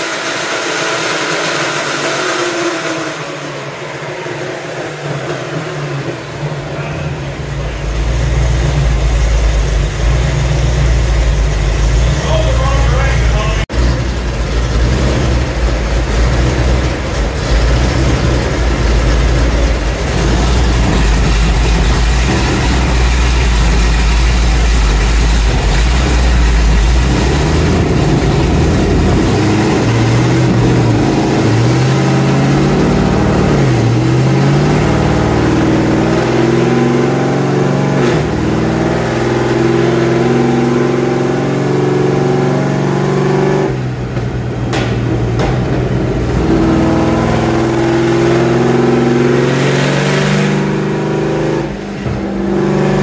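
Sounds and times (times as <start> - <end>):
race car engine revving: 0.0 - 53.0.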